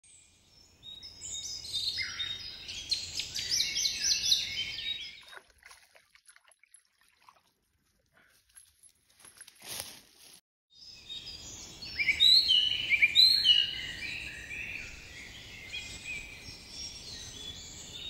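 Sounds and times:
songbirds singing: 0:00.1 - 0:05.5, 0:10.8 - 0:18.0.

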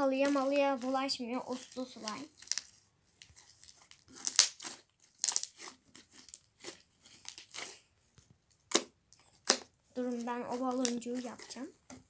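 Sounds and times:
slime squeezed by hand: 0:00.2 - 0:07.8.

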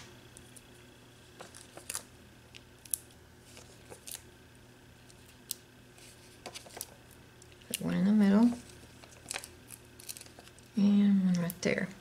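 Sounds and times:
paper rustling and clicking: 0:05.0 - 0:07.0, 0:08.4 - 0:10.6.

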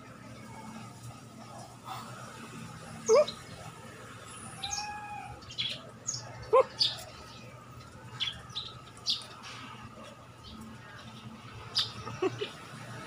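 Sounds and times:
small birds chirping: 0:03.0 - 0:09.8, 0:10.4 - 0:13.0.

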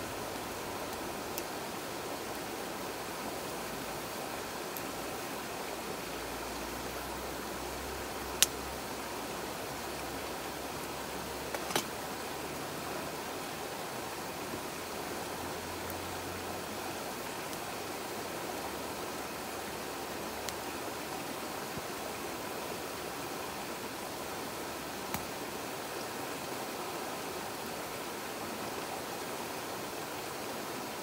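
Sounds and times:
campfire burning: 0:00.0 - 0:28.4
mountain stream rushing: 0:00.0 - 0:31.0
logs popping: 0:11.5 - 0:12.0.

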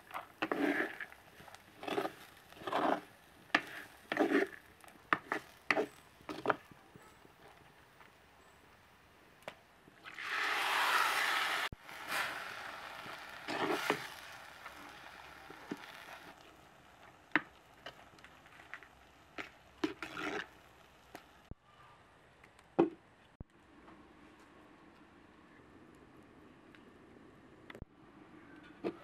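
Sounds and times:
wooden spoon stirring lentils: 0:00.0 - 0:07.2, 0:10.0 - 0:21.5.

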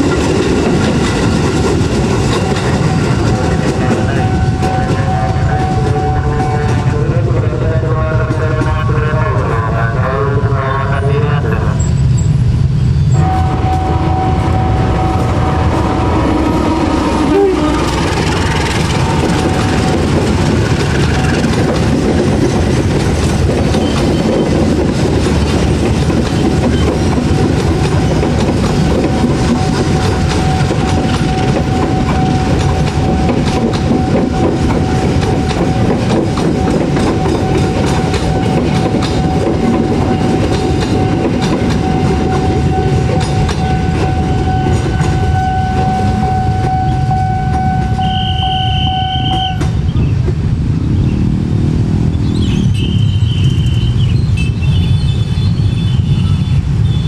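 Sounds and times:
wheels clacking over rail joints: 0:00.0 - 0:07.0, 0:17.0 - 0:50.6
train coaches rumbling past: 0:00.0 - 0:57.0
steady high tone: 0:13.0 - 0:20.2.

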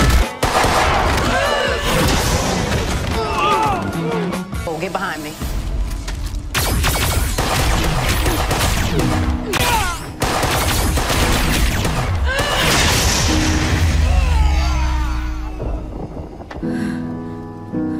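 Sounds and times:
gunfire and booms: 0:00.0 - 0:03.0, 0:06.5 - 0:13.9
dramatic music score: 0:00.0 - 0:17.9.

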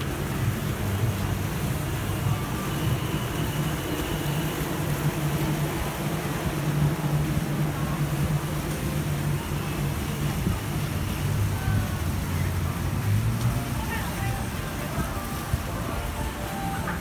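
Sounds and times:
city traffic noise: 0:00.0 - 0:17.0
low engine hum: 0:00.0 - 0:17.0.

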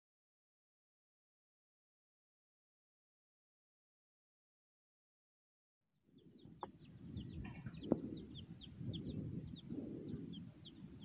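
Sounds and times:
small bird chirping: 0:06.1 - 0:11.0
chickens clucking: 0:06.3 - 0:11.0.

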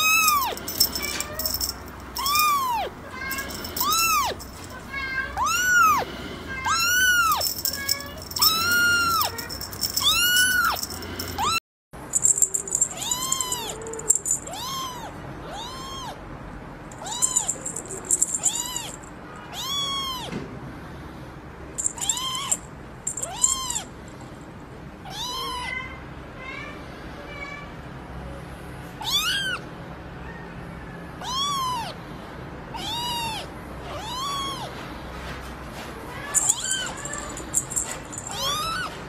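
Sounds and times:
kitten mewing: 0:02.2 - 0:06.0, 0:12.6 - 0:16.2, 0:17.0 - 0:20.3, 0:22.0 - 0:22.5, 0:23.2 - 0:23.8, 0:25.1 - 0:25.7, 0:32.8 - 0:34.7, 0:38.2 - 0:38.9.

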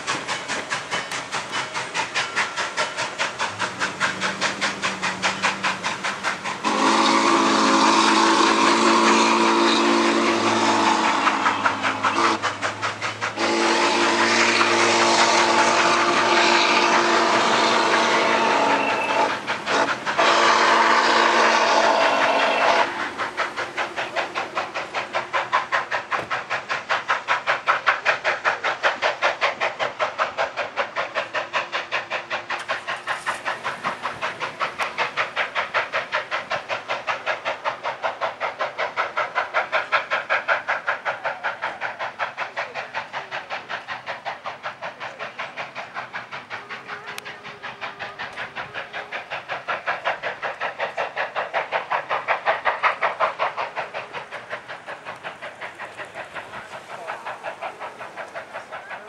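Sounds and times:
steam locomotive chime whistle: 0:06.6 - 0:12.4, 0:13.4 - 0:22.9.

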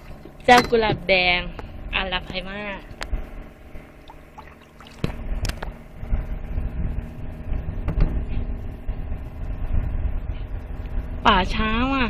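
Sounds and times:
water lapping around boat: 0:00.0 - 0:07.4
low steady rumble: 0:00.0 - 0:12.0.

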